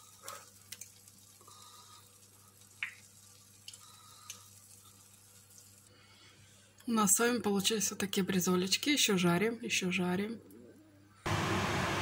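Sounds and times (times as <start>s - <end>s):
faint sizzle of frying: 0.0s - 6.8s.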